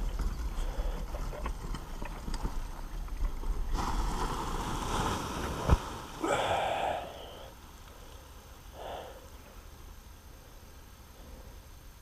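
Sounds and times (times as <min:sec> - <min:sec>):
trike rolling on grass: 0:00.0 - 0:08.7.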